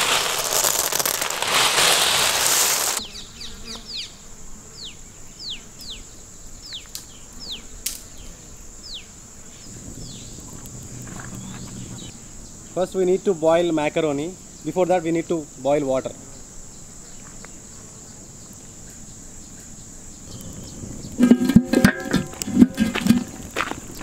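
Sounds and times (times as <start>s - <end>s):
dry macaroni rustling: 0.0s - 3.0s
falling bird chirps: 0.0s - 6.0s, 6.6s - 12.5s
high insect buzz: 0.0s - 24.0s.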